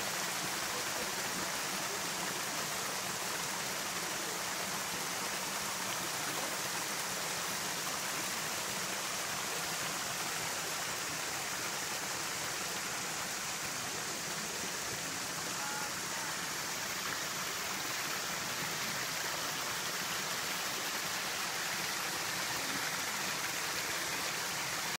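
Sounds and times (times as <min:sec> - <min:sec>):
stream flowing: 0:00.0 - 0:24.9.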